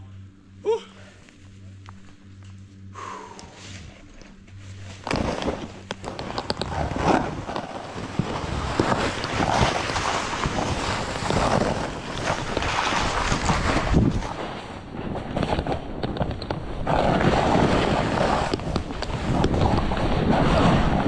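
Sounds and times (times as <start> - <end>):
snowboard edge scraping snow: 3.6 - 16.0, 16.7 - 21.0
wind rushing over microphone: 4.7 - 21.0.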